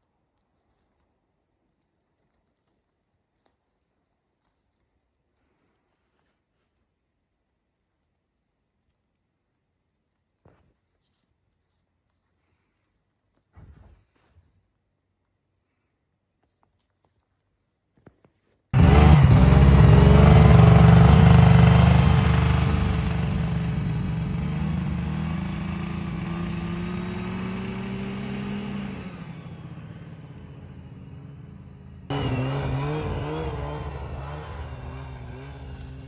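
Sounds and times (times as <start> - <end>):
snowmobile engine running: 18.8 - 36.0.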